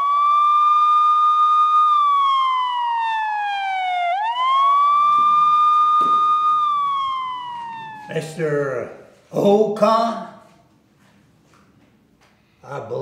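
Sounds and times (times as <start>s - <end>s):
police siren wailing: 0.0s - 9.0s.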